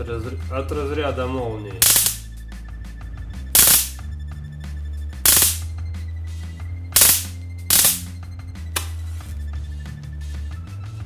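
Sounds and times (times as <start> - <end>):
background music: 0.0 - 11.0
crackling electric spark bursts: 1.8 - 2.3, 3.6 - 4.0, 5.3 - 5.7, 7.0 - 8.1.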